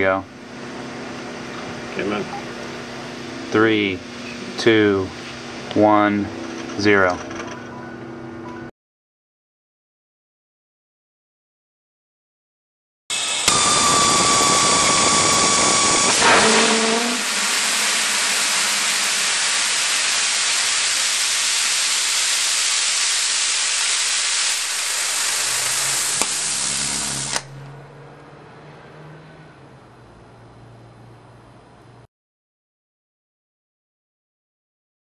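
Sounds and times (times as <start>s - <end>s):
rocket motor rushing hiss: 13.1s - 27.6s
steady high tone: 13.2s - 21.7s.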